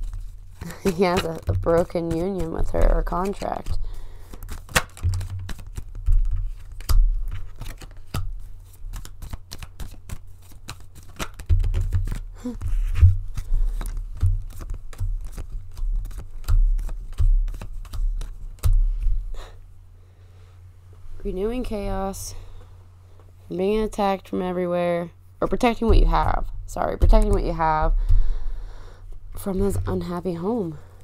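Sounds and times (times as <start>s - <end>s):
cards being shuffled: 0.0s - 19.4s
dull thumps of card deck: 4.5s - 10.2s, 11.2s - 19.2s.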